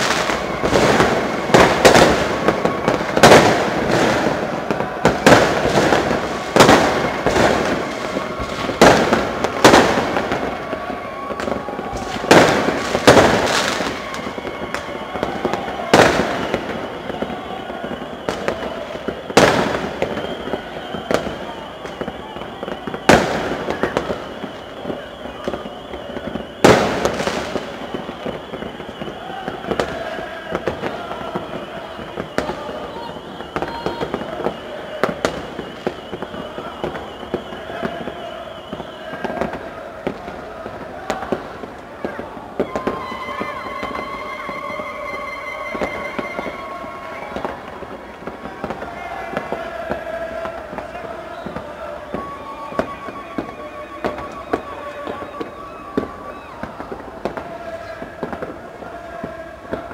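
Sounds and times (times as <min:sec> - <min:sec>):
fireworks and firecrackers banging: 0:00.0 - 0:59.9
steady background din: 0:00.0 - 0:59.9.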